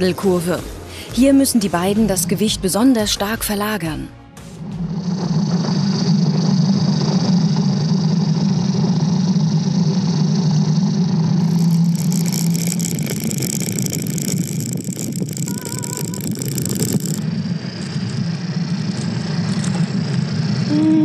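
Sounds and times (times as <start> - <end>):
sled tyres rolling on asphalt: 4.4 - 21.0.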